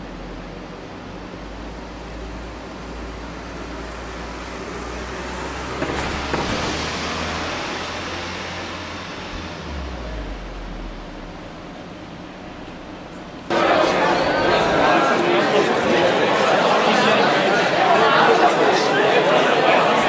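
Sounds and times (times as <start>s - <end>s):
street traffic noise: 0.0s - 20.0s
vehicle passing: 2.5s - 19.9s
steady low hum: 7.6s - 15.2s.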